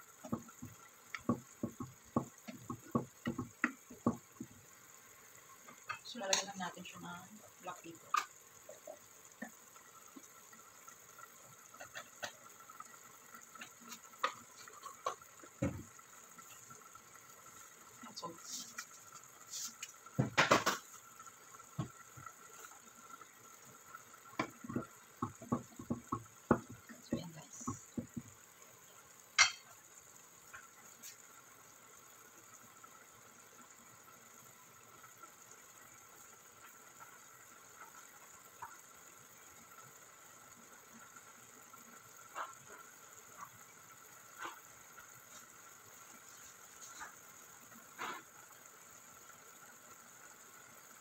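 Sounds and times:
faint steady hiss: 0.0 - 51.0
sauce simmering in a pot: 0.0 - 51.0
wooden spoon knocking on pot: 0.2 - 4.6, 20.2 - 20.8, 24.4 - 28.4.

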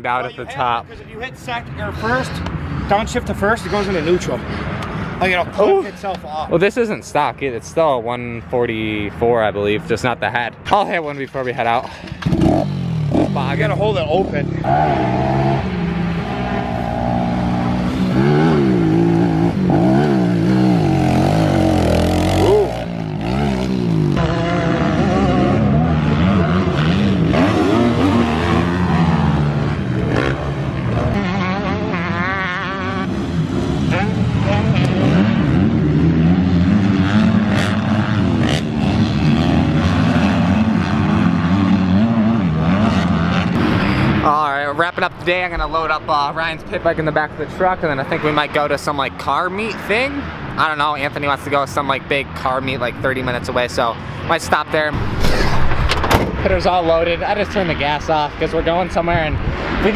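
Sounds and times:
dirt bike engine revving: 12.1 - 45.0.

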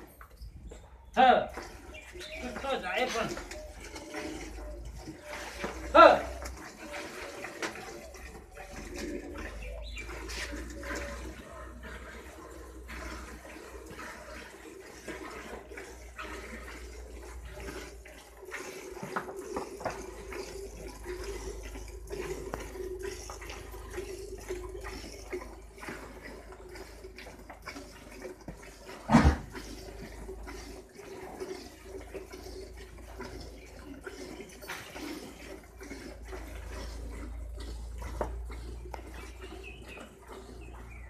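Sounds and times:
milk squirting into steel pail: 1.4 - 41.0.

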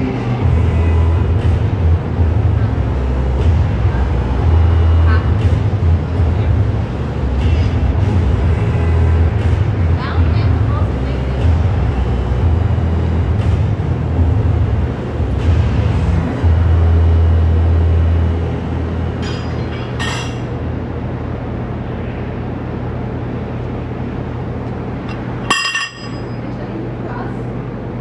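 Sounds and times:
low rumble in a large room: 0.0 - 28.0
short ringing clinks: 25.5 - 26.4.

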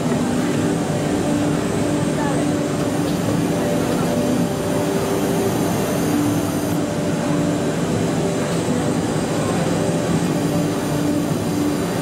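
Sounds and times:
loud machine noise: 0.0 - 7.0, 9.7 - 12.0.

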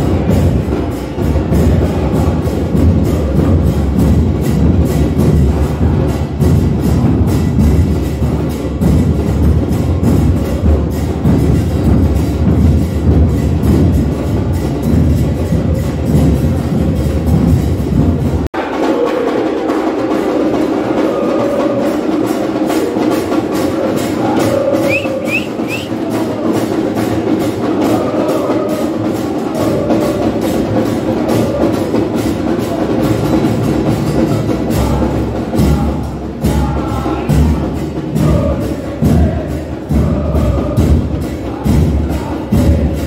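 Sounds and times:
crowd singing chants: 0.0 - 43.0.

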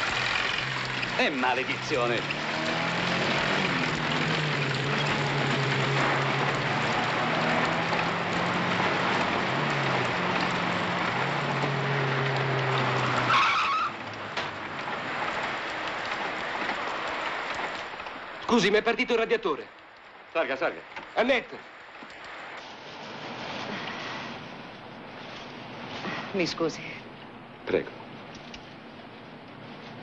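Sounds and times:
car engine running: 0.0 - 13.5
road noise: 0.0 - 30.0
brief squeal: 13.2 - 14.0.

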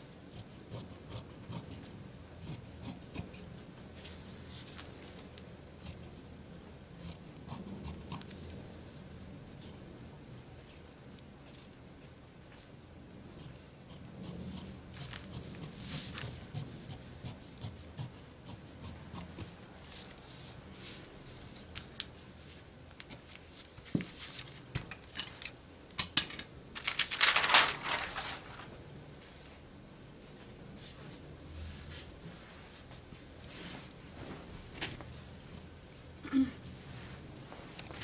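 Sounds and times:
paper rustling: 23.3 - 25.5, 26.8 - 28.8.

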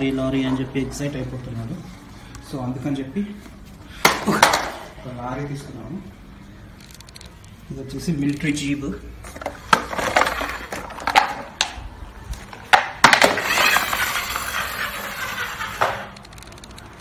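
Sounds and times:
toy wheels rolling on stone: 9.3 - 11.8, 12.4 - 17.0
plastic toy clacking: 12.7 - 17.0.

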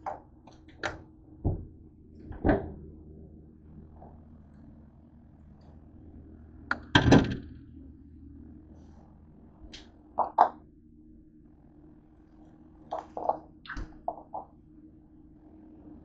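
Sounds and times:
refrigerator door opening clatter: 0.7 - 2.9, 6.8 - 7.5.

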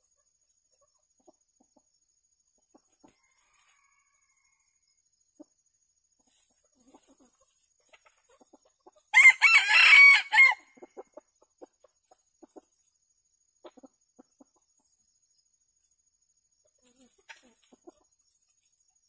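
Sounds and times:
rooster crowing: 3.2 - 4.6, 9.1 - 10.8.

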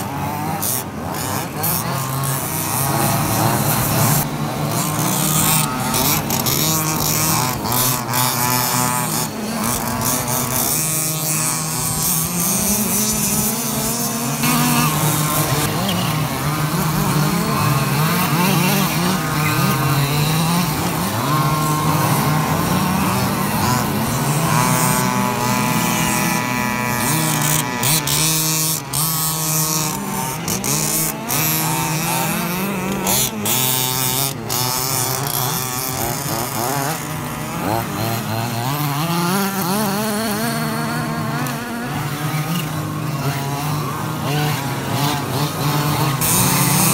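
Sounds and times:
model car engines revving: 0.0 - 46.9.

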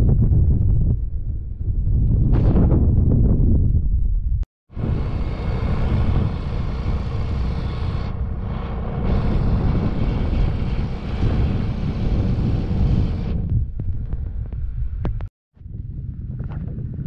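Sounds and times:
wind rushing over microphone: 0.0 - 17.0
motorbike engine running: 4.8 - 15.2.

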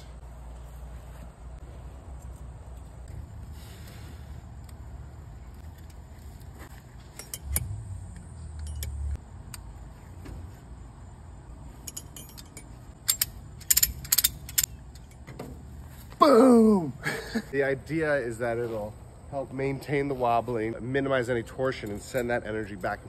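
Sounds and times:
ratchet strap clicking: 11.9 - 15.2.

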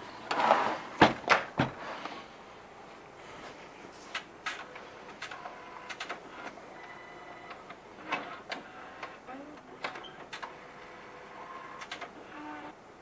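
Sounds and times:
printer gears clunking and clicking: 9.8 - 10.6, 11.6 - 12.1.

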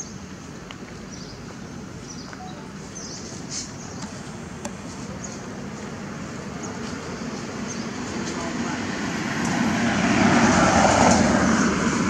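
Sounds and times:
faint high chirps: 2.3 - 3.4.

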